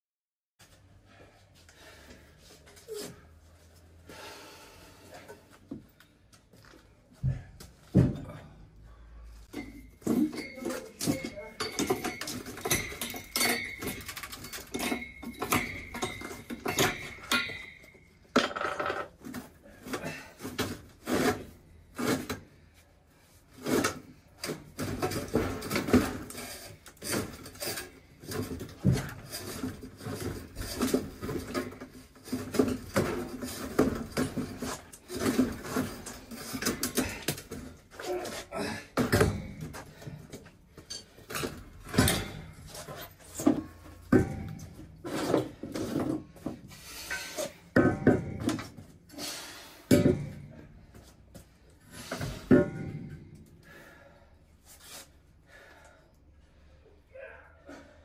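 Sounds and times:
metallic clanks and scrapes: 9.4 - 22.7, 23.5 - 50.9, 51.5 - 53.7.

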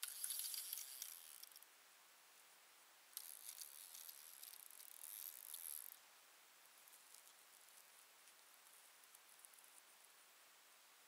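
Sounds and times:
fishing reel clicking: 0.0 - 1.6, 3.2 - 6.0.

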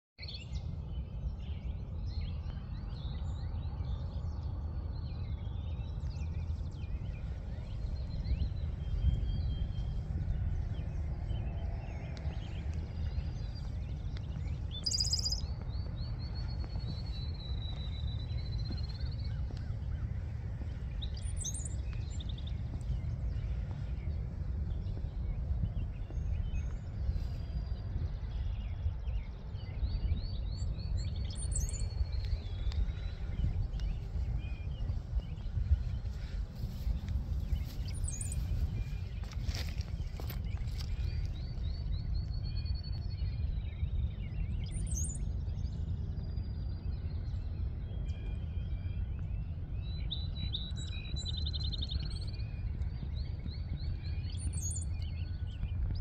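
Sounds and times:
songbirds chirping and singing: 0.2 - 56.0
steady low rumble: 0.2 - 56.0.

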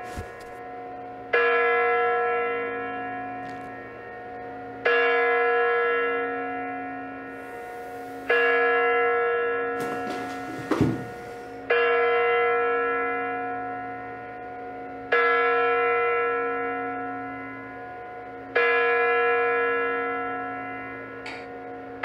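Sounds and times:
deep clock bell striking: 0.5 - 22.0
short thud: 9.8 - 11.3.

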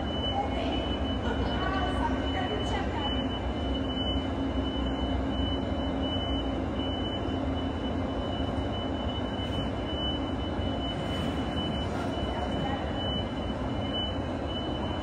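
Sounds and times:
mechanical drone of equipment: 8.7 - 15.0.

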